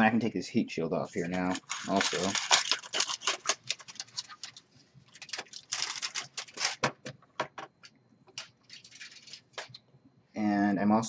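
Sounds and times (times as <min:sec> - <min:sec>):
aluminum foil crinkling: 0:01.1 - 0:07.0, 0:08.3 - 0:09.8.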